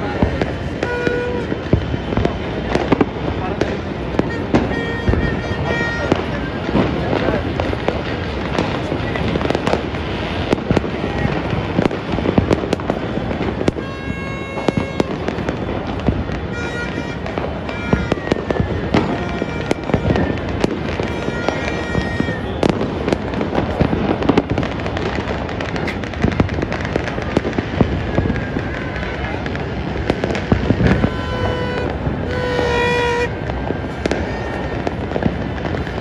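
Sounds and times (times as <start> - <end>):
fireworks and firecrackers bangs: 0.0 - 36.0
horn-like tones: 4.0 - 6.8, 16.3 - 22.6, 30.8 - 35.1.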